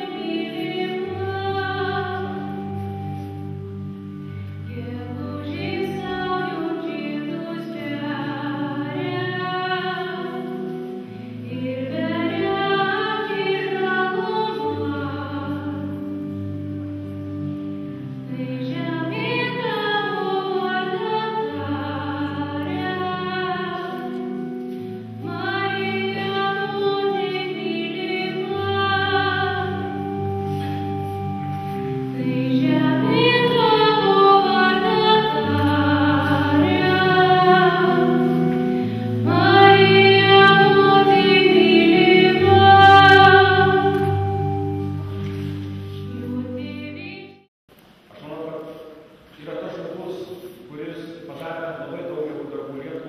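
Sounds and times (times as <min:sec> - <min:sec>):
instrumental accompaniment: 0:00.0 - 0:48.1
girl singing into a microphone: 0:25.2 - 0:30.1, 0:32.2 - 0:38.5, 0:39.2 - 0:44.4.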